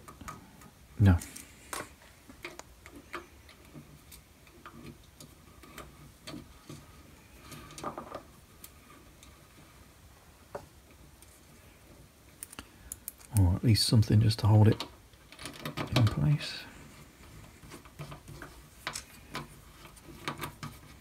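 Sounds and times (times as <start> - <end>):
cable rustling: 0.0 - 13.6, 14.4 - 21.0
faint cable clicks: 12.4 - 13.6.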